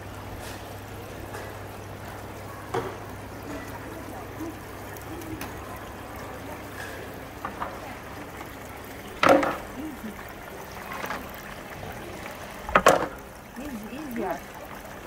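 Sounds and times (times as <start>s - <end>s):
fountains trickling and splashing: 0.0s - 15.0s
murmur of voices: 2.2s - 12.6s.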